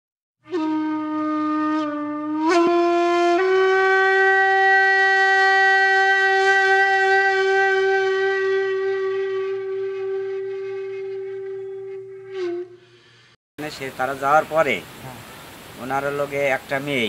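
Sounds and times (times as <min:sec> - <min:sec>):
reedy wind instrument note: 0:00.4 - 0:13.4.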